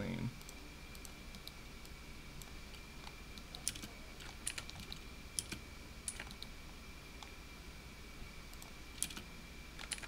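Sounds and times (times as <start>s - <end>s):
mouse clicks: 0.4s - 6.5s
computer keyboard clicks: 3.4s - 6.5s, 8.6s - 9.2s, 9.8s - 10.0s.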